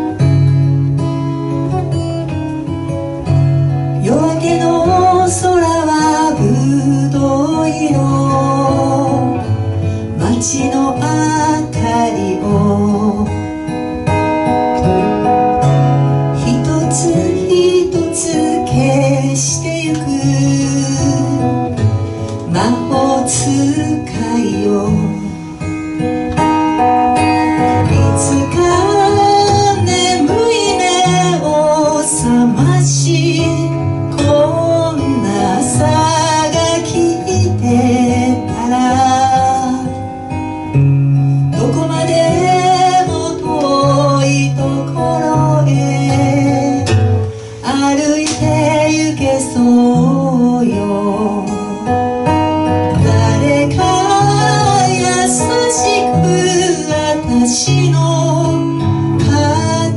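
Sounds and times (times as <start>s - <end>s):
acoustic guitar: 0.0s - 59.9s
woman singing into a microphone: 3.7s - 59.9s.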